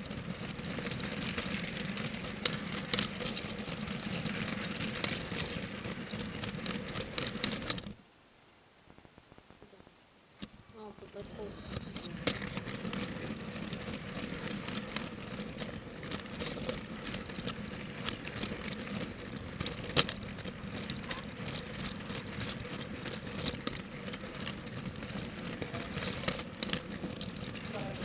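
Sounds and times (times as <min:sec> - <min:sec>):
toy train wheels clattering on track: 0:00.0 - 0:08.0, 0:11.1 - 0:28.0
faint steady hum: 0:00.0 - 0:28.0.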